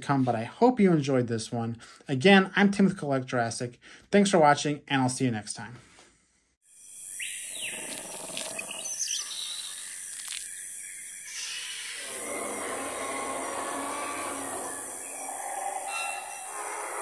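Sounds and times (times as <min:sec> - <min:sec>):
high insect drone: 0:06.7 - 0:17.0
birds chirping: 0:06.8 - 0:17.0.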